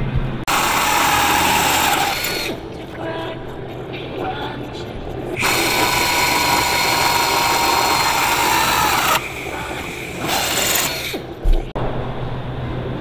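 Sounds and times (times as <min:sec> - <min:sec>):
pneumatic drill whining: 0:00.5 - 0:02.6, 0:05.4 - 0:11.4.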